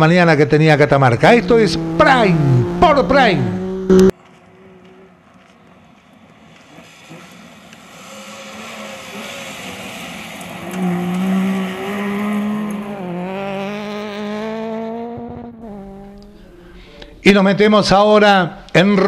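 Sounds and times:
rally car engine at full throttle: 1.1 - 4.1, 6.6 - 16.8
tyres on gravel: 4.1 - 12.4.

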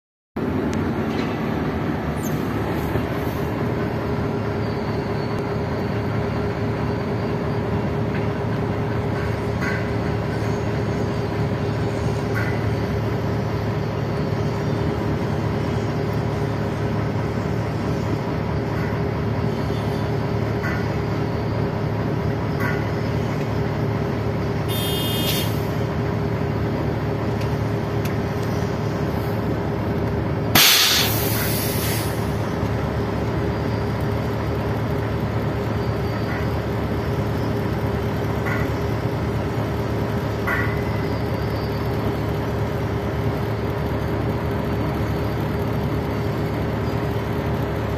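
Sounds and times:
large engine droning: 0.4 - 47.9
hissing air blast: 30.6 - 32.2.

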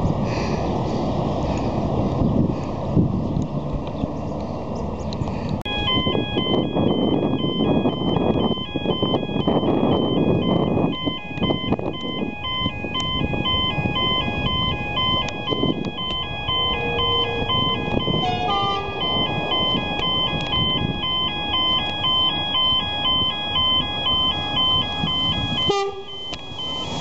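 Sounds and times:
steady low rumble: 5.0 - 27.0
electronic beeping tune: 5.7 - 27.0.

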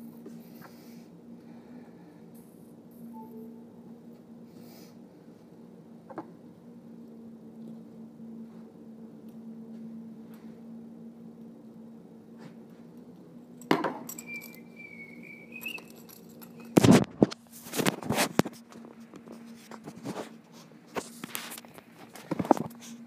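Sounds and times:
low hum: 1.4 - 4.5
faint wavering squeal: 3.0 - 4.0, 14.1 - 16.8.

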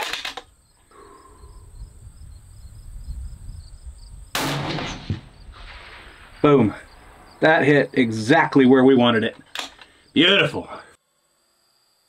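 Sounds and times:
rifle shot: 4.3 - 7.4.

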